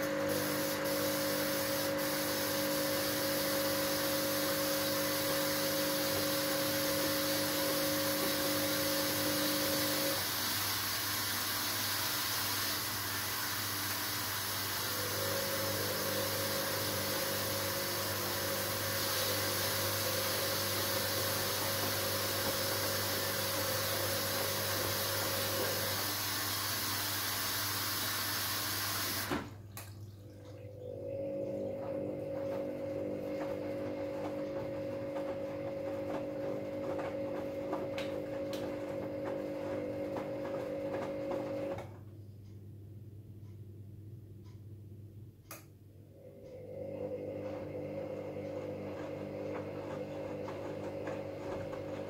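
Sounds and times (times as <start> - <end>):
washing machine water rushing: 0.0 - 42.1, 46.1 - 52.0
washing machine motor humming: 0.0 - 44.9, 45.9 - 52.0.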